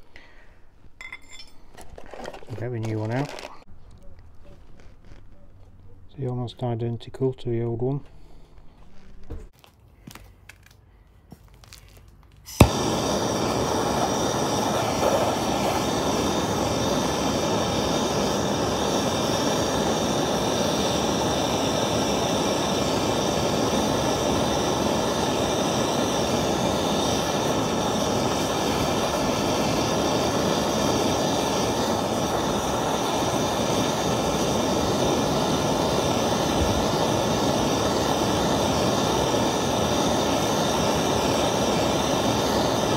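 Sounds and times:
blowtorch flame hissing: 12.5s - 42.9s
blowtorch ignition click: 12.5s - 42.9s.

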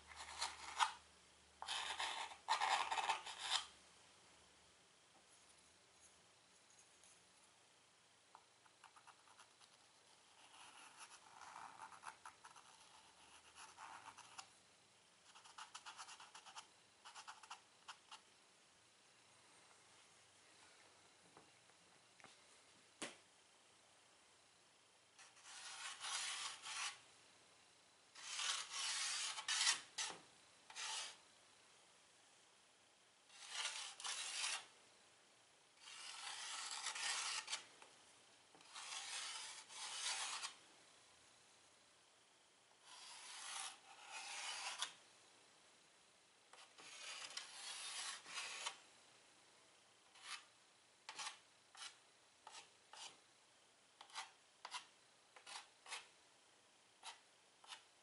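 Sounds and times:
chalk scratching on chalkboard: 1.6s - 3.7s, 8.8s - 14.5s, 25.2s - 27.0s, 28.2s - 31.2s, 33.3s - 34.7s, 35.8s - 37.6s, 38.6s - 40.6s, 42.9s - 45.0s, 46.6s - 48.8s, 50.1s - 50.5s, 51.1s - 53.2s, 54.0s - 56.1s, 57.0s - 57.8s.

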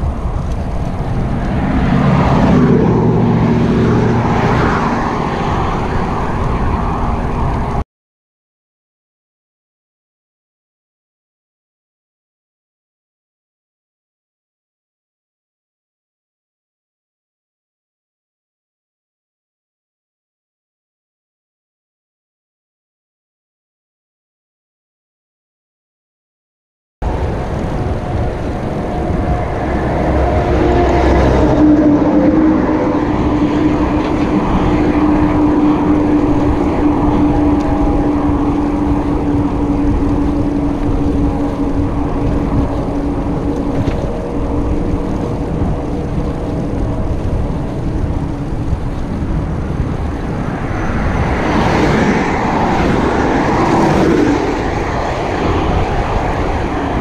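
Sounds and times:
motor traffic hum: 0.0s - 7.8s, 27.0s - 57.0s
vehicle passing: 0.0s - 7.8s, 27.0s - 57.0s
wind on microphone: 0.0s - 7.8s, 27.0s - 57.0s.

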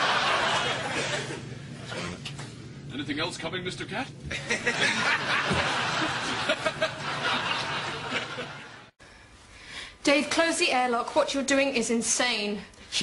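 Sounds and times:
people laughing: 0.0s - 1.5s, 4.3s - 8.9s.

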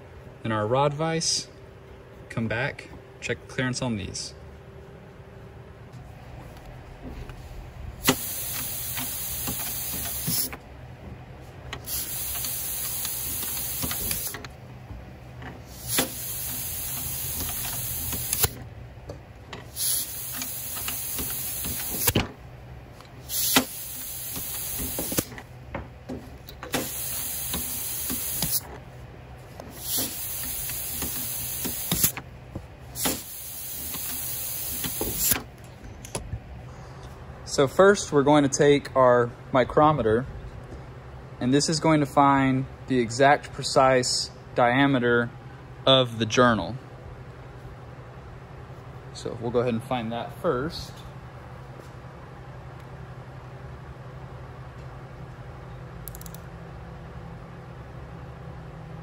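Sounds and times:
compressed air hissing: 8.0s - 10.6s, 11.8s - 14.4s, 15.6s - 18.6s, 19.7s - 22.2s, 23.2s - 25.3s, 26.7s - 28.6s, 29.7s - 32.1s, 33.0s - 35.4s.

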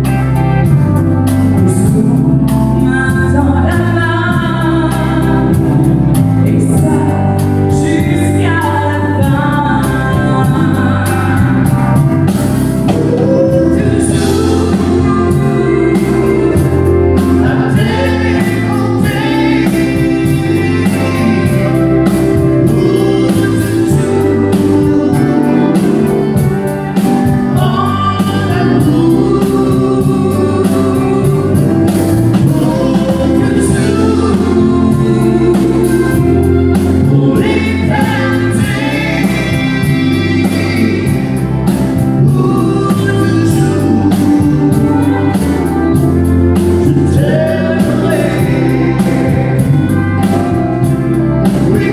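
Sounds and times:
drum kit beat: 0.0s - 51.9s
woman singing: 6.5s - 11.8s, 12.9s - 26.5s, 27.5s - 31.7s, 32.3s - 41.2s.

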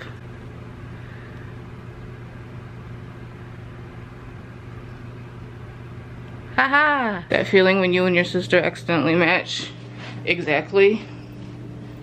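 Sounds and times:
low hum with faint hiss: 0.0s - 12.0s.

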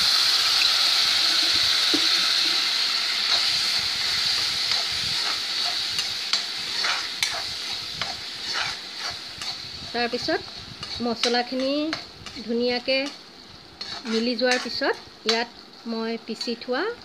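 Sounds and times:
paste sizzling in hot oil: 0.0s - 17.0s
spoon scraping pan: 1.9s - 15.5s.

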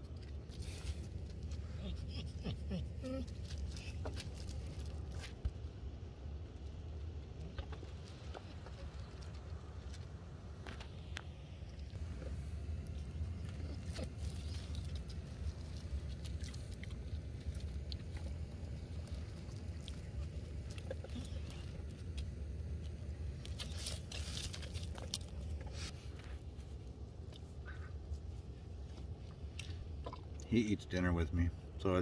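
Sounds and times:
low rumble: 0.0s - 30.6s
dog crunching dry kibble: 12.0s - 25.9s.

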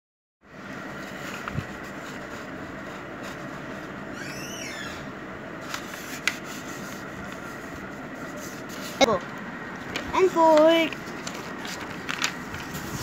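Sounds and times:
paper folding and rubbing: 0.9s - 4.0s, 5.6s - 9.1s, 10.2s - 13.0s.

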